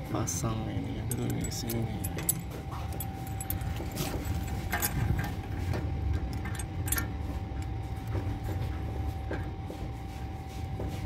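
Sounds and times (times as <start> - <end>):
faint constant hum: 0.0 - 11.0
steady low rumble: 0.0 - 11.0
metallic clinks and taps: 1.0 - 5.3.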